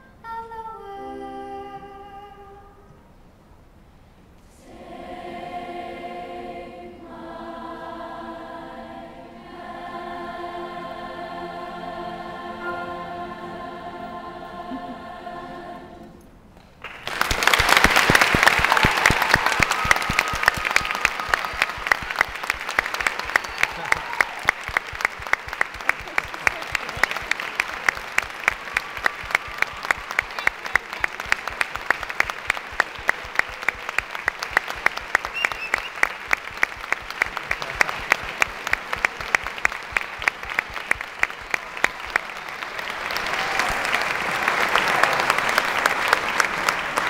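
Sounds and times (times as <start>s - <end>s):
audience applause: 16.8s - 47.0s
loud claps close by: 16.8s - 47.0s.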